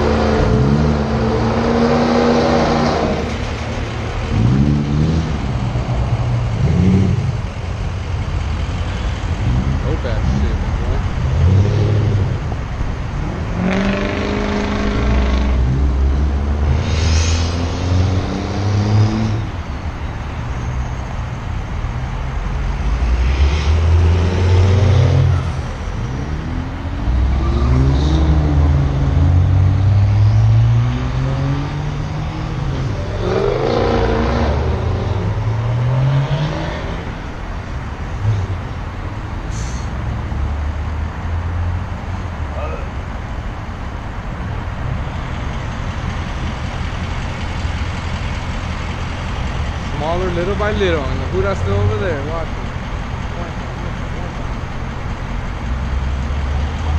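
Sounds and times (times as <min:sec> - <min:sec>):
vehicle engine revving: 0:00.0 - 0:07.8, 0:13.2 - 0:19.6, 0:22.7 - 0:37.3.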